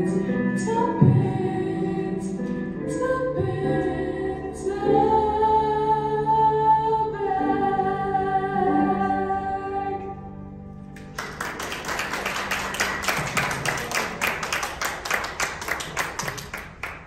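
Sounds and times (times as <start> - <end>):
small audience applauding: 11.0 - 17.0.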